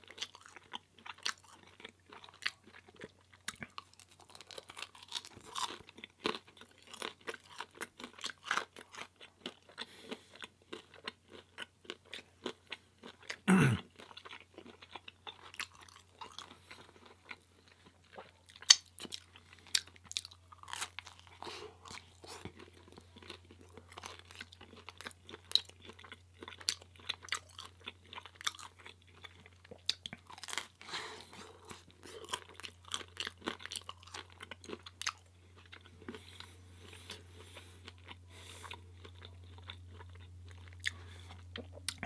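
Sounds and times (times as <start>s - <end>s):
chewing and crunching food: 0.0s - 42.0s.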